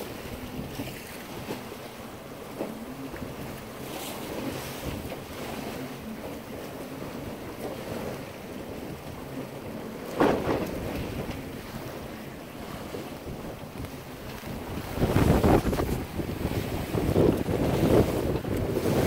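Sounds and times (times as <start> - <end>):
water rushing along a hull: 0.0 - 19.0
wind buffeting microphone: 0.0 - 19.0.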